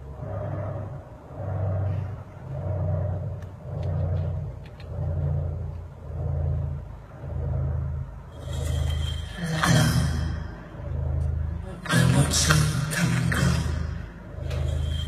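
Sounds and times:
deep throbbing drone: 0.0 - 15.0
bright hissing swell: 8.3 - 10.6.

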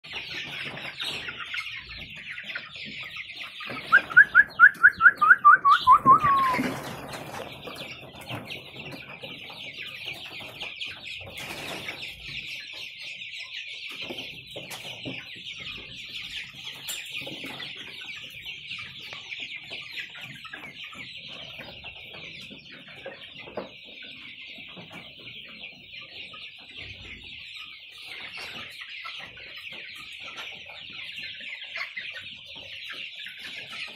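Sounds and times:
chicks peeping: 0.0 - 33.9
loud rapid bird calls: 3.7 - 7.4.

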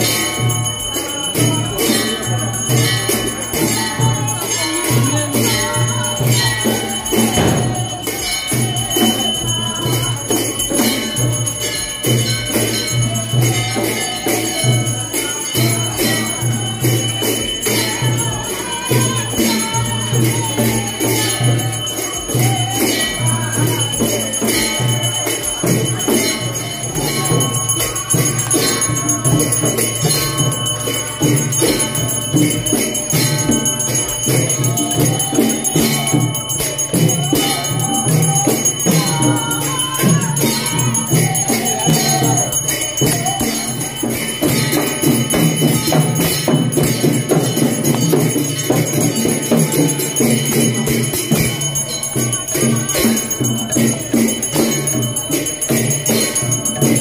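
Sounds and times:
devotional music: 0.0 - 57.0
hand bell ringing: 0.0 - 57.0.

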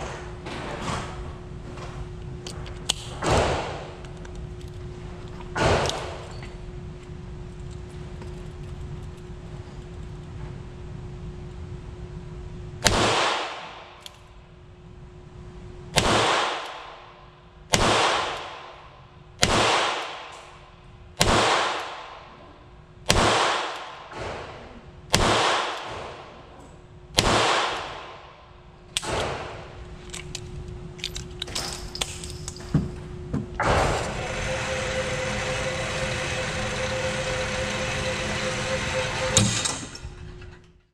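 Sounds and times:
revolver gunshots: 12.8 - 14.0, 15.9 - 17.0, 17.7 - 18.8, 19.4 - 20.4, 21.2 - 22.3, 23.1 - 26.5, 27.2 - 28.3
target carrier motor running: 33.1 - 40.8.

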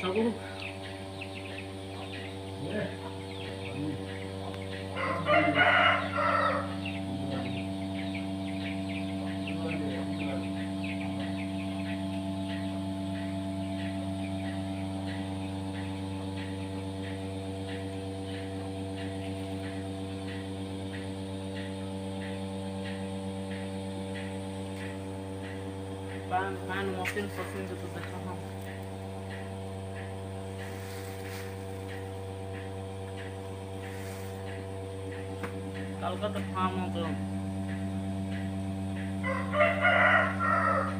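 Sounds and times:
steady electric hum: 0.0 - 40.9
rooster crowing: 4.9 - 7.1, 39.2 - 40.9.

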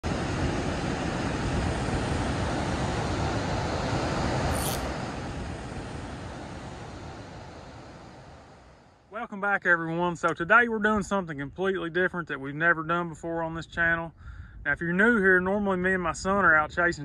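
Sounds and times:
brief high hiss: 4.4 - 5.2.

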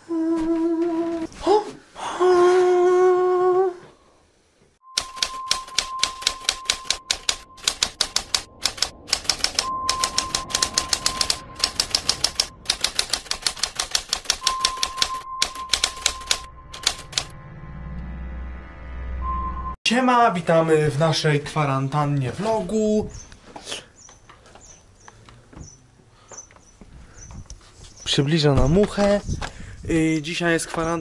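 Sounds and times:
steady high tone: 4.8 - 12.9, 14.4 - 19.8
typewriter key clacks: 5.0 - 17.3.

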